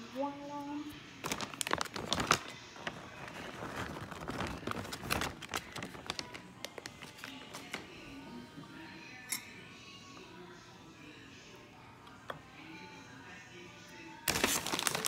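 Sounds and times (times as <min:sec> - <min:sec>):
plastic bag crinkling: 0:01.2 - 0:07.7, 0:14.3 - 0:15.0.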